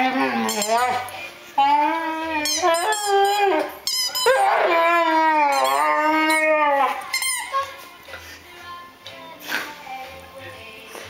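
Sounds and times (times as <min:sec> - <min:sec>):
dog howling and moaning: 0:00.0 - 0:07.8
dog yelping: 0:02.3 - 0:07.8.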